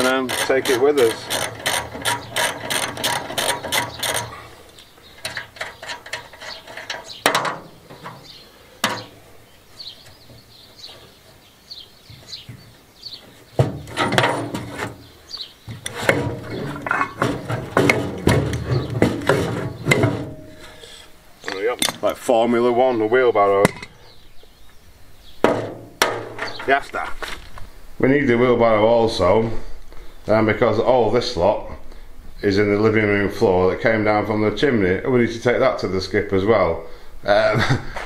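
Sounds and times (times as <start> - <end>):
metal clunks and rattles: 0.0 - 9.2, 13.5 - 20.8, 25.4 - 26.8
sharp knocks: 7.0 - 9.2, 13.6 - 15.0, 15.7 - 20.5, 25.4 - 26.8.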